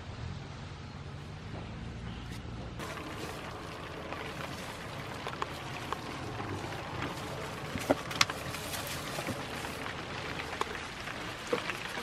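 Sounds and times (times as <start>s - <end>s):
drops ticking: 2.8s - 12.0s
light rain falling: 2.8s - 12.0s.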